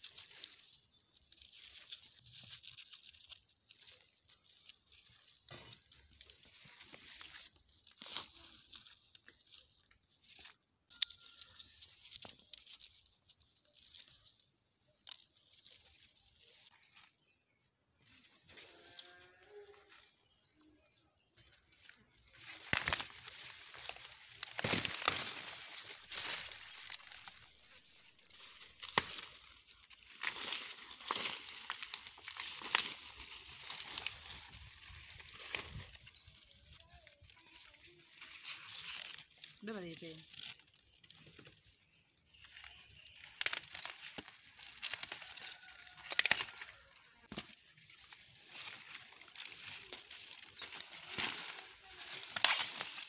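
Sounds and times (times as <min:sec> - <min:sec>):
maize leaves rustling: 0:00.0 - 0:53.0
husks rustling and crackling: 0:18.0 - 0:39.6
stalks snapping: 0:22.4 - 0:27.4, 0:28.3 - 0:36.5, 0:43.2 - 0:46.7, 0:47.3 - 0:53.0.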